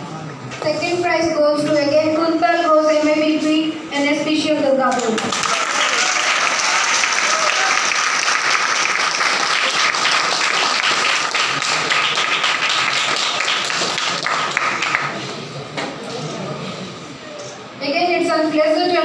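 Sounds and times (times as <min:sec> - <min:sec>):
audience applauding: 0:05.2 - 0:15.3.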